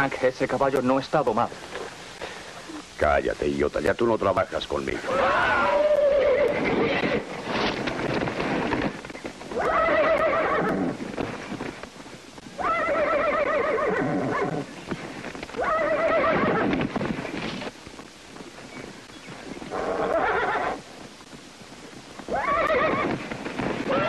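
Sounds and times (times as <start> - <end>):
hooves clattering: 3.8 - 24.0
horse whinnying: 5.1 - 7.3, 9.6 - 11.0, 12.6 - 14.7, 15.6 - 16.9, 19.7 - 20.8, 22.3 - 23.2.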